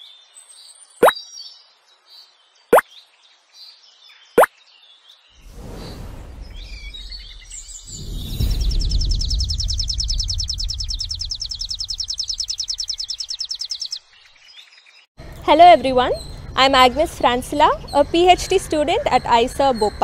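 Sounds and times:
bird chirps: 0:00.5 - 0:01.6, 0:06.5 - 0:20.0
rushing noise: 0:05.4 - 0:12.8
deep rumble: 0:05.5 - 0:12.9
rapid bird trill: 0:07.0 - 0:14.1.

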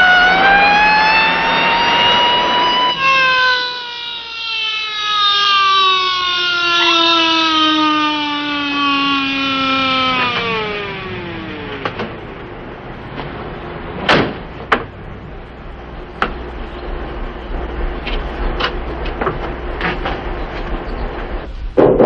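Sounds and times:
steady low hum: 0:01.4 - 0:22.0
car door shutting: 0:14.0 - 0:14.9.

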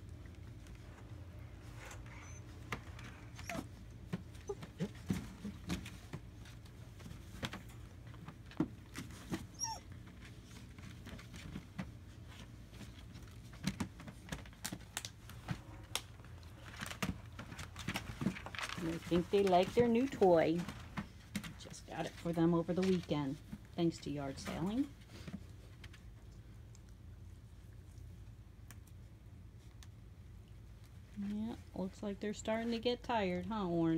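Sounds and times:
paws scuffling on plastic: 0:00.1 - 0:26.6
puppies whimpering and yipping: 0:02.0 - 0:02.6, 0:03.2 - 0:05.1, 0:09.4 - 0:10.0.

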